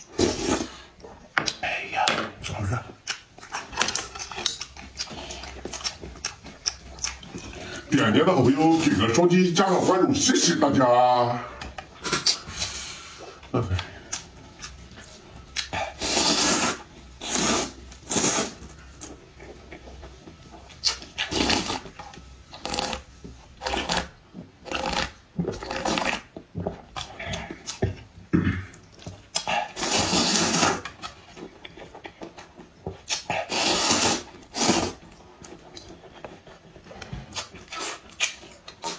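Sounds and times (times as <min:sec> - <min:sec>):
person slurping noodles: 0:00.0 - 0:00.9, 0:15.6 - 0:18.6, 0:21.2 - 0:21.8, 0:29.5 - 0:30.9, 0:33.1 - 0:35.0.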